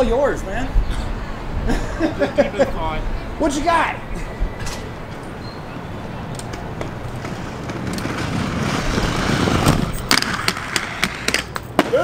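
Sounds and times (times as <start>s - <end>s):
skate wheels rolling on concrete: 4.7s - 12.0s.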